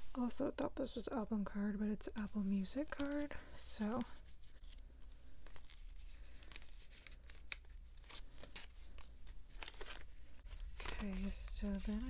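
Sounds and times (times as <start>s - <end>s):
plastic sleeves rustling: 1.9s - 12.0s
cards clicking and scraping: 2.7s - 12.0s.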